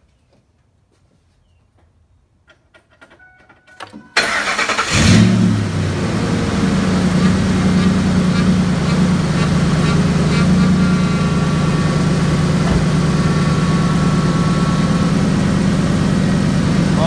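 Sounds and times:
truck engine idling: 0:04.2 - 0:17.0.

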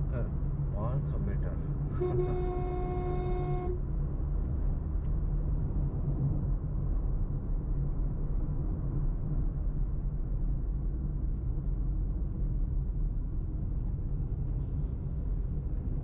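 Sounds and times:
car engine and tyre noise: 0:03.3 - 0:16.0.

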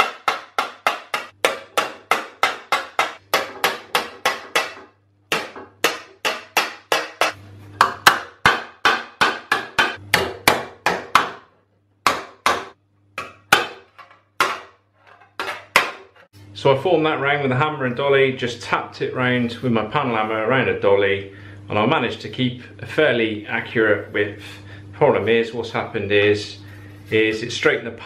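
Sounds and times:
hammer tapping sheet metal: 0:00.0 - 0:14.8.

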